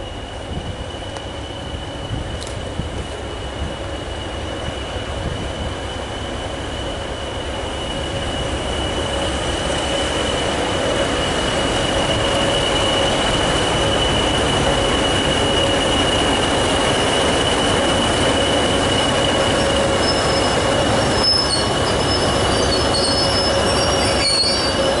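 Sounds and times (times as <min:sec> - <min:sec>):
diesel locomotive engine: 0:00.0 - 0:25.0
faint high squeaks: 0:19.6 - 0:25.0.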